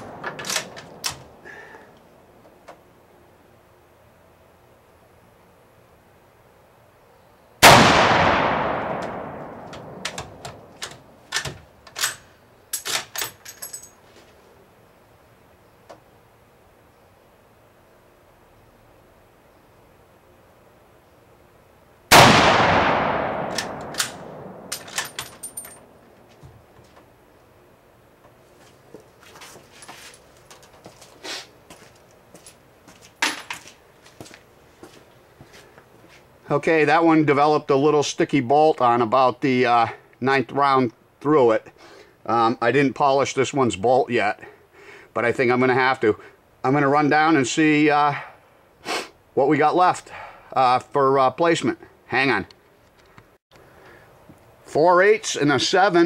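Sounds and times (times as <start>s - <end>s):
rifle gunshot: 7.6s - 10.7s, 22.1s - 24.7s
metallic clinks and knocks: 9.7s - 14.0s, 23.5s - 25.9s, 33.2s - 33.7s
rifle bolt clicking: 23.4s - 25.1s.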